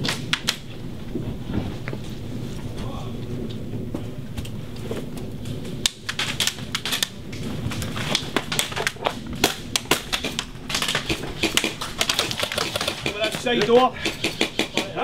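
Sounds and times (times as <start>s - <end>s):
airsoft gun shots: 9.4s - 15.0s.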